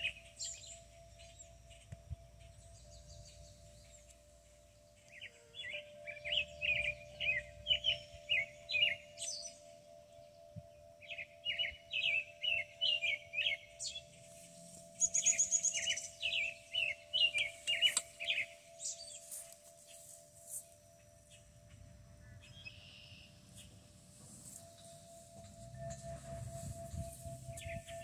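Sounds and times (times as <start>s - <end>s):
bird chirping: 0.0s - 28.0s.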